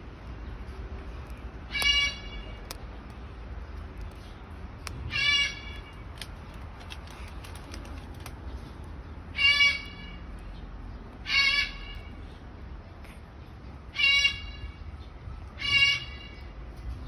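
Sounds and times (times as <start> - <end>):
cockatoo squawking: 1.7 - 2.8, 5.0 - 5.9.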